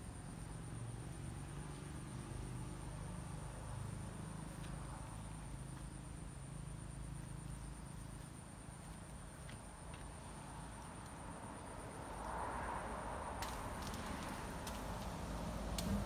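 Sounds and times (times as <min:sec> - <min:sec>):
faint ticks: 0:13.4 - 0:16.0.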